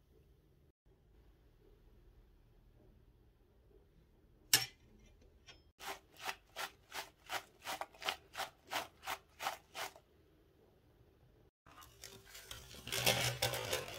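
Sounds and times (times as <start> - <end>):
apple slices tossed in glass bowl: 5.8 - 10.0.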